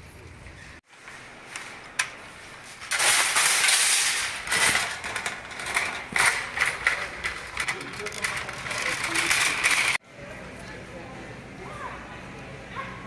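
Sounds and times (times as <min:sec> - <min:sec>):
shopping cart rattling: 0:02.6 - 0:10.0.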